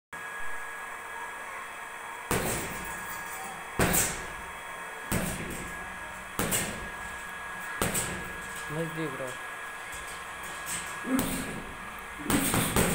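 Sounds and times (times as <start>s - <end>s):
punches thudding on punching bag: 2.3s - 3.2s, 3.8s - 4.4s, 5.1s - 8.6s, 9.9s - 12.9s.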